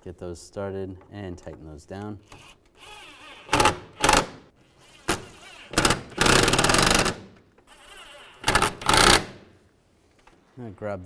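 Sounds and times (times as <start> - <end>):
impact driver running screws: 2.3 - 9.4.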